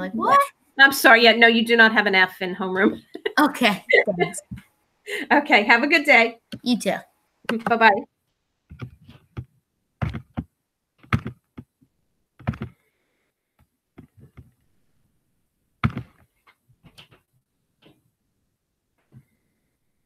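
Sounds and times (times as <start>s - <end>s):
short knocks and thumps: 8.7s - 11.7s, 12.4s - 12.8s, 15.8s - 17.2s.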